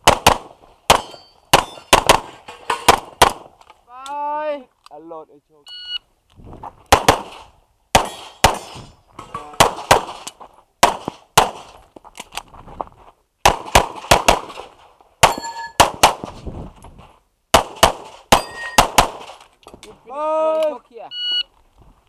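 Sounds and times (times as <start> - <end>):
steel target ringing: 15.3 - 15.8.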